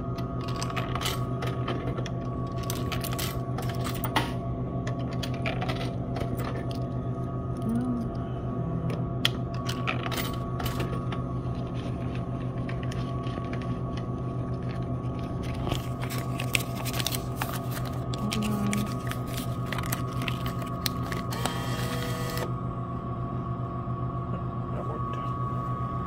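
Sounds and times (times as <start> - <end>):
electrical hum: 0.0 - 26.0
coins clicking and rattling: 2.5 - 4.2
motor whirring: 21.3 - 22.5.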